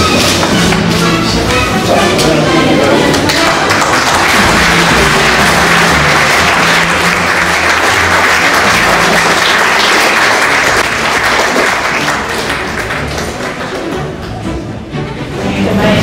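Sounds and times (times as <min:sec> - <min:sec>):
music playing: 0:00.0 - 0:16.0
audience applauding: 0:03.1 - 0:14.4.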